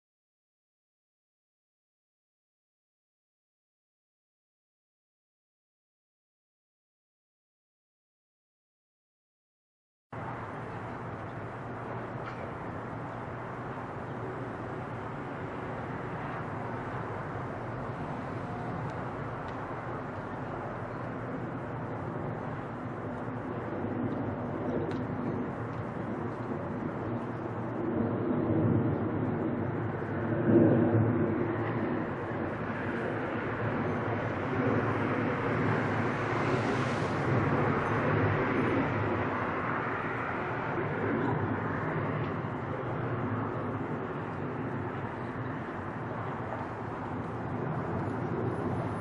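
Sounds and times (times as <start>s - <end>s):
distant jet engines at takeoff: 10.1s - 49.0s
distant aircraft rumble: 10.2s - 49.0s
distant traffic rumble: 10.2s - 49.0s.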